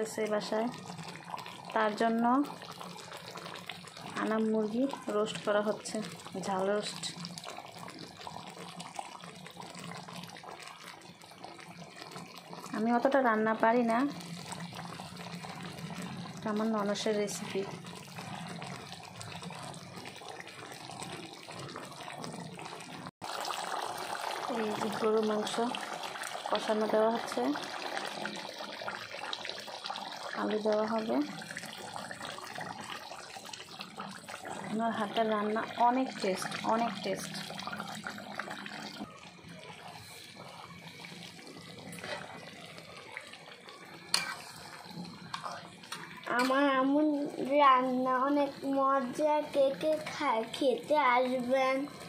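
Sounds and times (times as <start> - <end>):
chicken sizzling in oil: 0.0 - 52.0
gravy bubbling in pot: 0.0 - 52.0.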